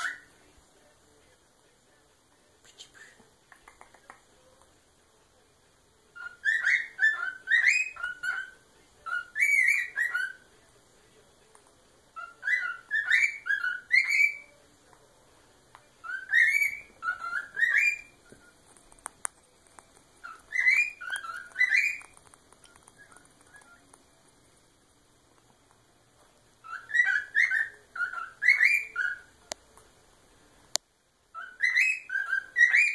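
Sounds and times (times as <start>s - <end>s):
cockatiel whistling: 0.0s - 0.3s, 6.2s - 10.5s, 12.2s - 14.6s, 16.0s - 18.6s, 20.2s - 23.9s, 26.6s - 29.3s, 31.3s - 32.9s.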